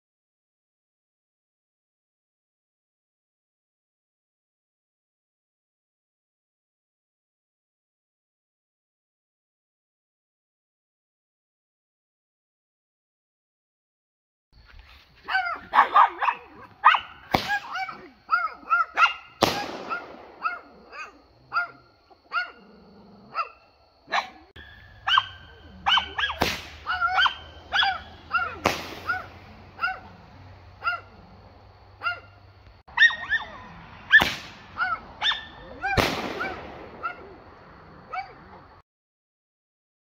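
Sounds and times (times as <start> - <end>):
dog barking rapidly: 15.2 - 22.7, 23.3 - 31.4, 32.0 - 37.4, 38.0 - 38.7
firework shells popping: 17.2 - 17.8, 19.2 - 21.0, 26.3 - 27.4, 28.6 - 29.5, 34.2 - 34.8.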